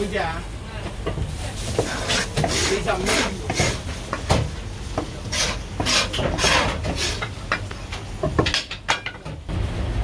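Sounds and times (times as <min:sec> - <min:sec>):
containers scraping and clattering: 0:01.4 - 0:09.3.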